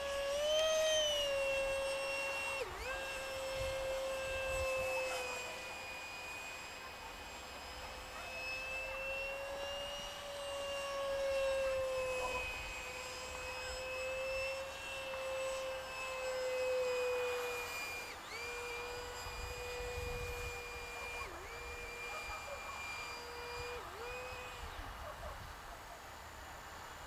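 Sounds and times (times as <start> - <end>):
model jet fan whine: 0.0 - 27.0.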